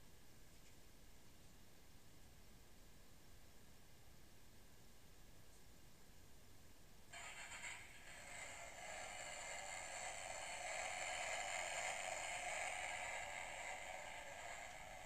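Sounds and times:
electric scooter motor whirring: 7.2s - 15.0s.

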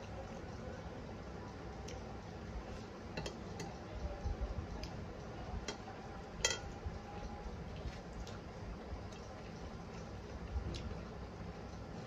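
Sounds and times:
ringing metallic clink: 6.4s - 6.7s.

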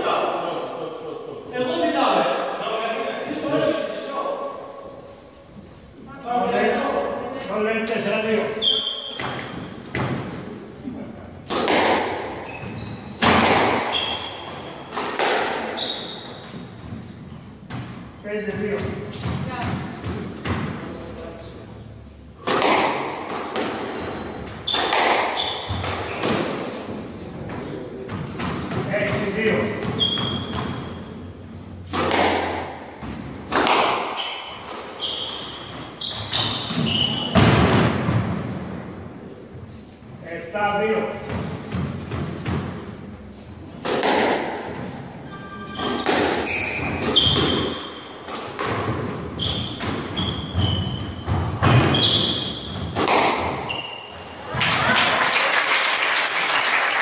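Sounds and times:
shoes squeaking on wooden floor: 7.4s - 10.3s, 12.3s - 20.6s, 23.6s - 31.8s, 33.0s - 37.5s, 44.7s - 54.4s
squash ball hits echoing: 8.8s - 10.5s, 11.4s - 20.9s, 22.4s - 27.2s, 28.0s - 38.8s, 41.2s - 45.0s, 45.8s - 54.4s.

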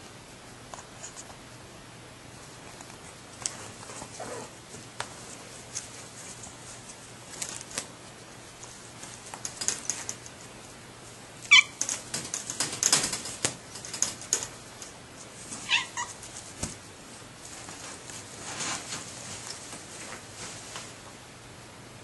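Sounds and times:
wire crate clicking and rattling: 9.1s - 10.4s, 11.5s - 15.0s
cats meowing: 11.5s - 11.9s, 15.6s - 16.2s.

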